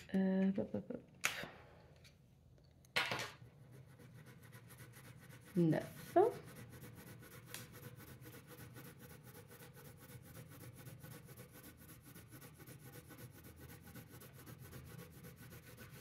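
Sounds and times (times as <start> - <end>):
pencil scratching on paper: 3.4 - 16.0.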